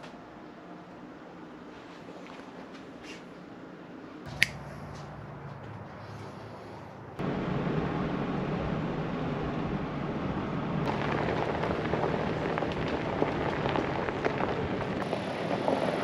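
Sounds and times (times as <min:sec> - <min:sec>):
road noise rumble: 0:00.0 - 0:16.0
low engine hum: 0:04.3 - 0:16.0
small crackles: 0:10.9 - 0:16.0.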